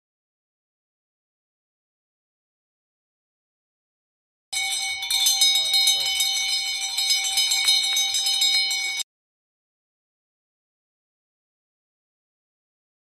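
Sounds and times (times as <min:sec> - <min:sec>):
metal spoon beating steel plate: 0:04.6 - 0:09.0.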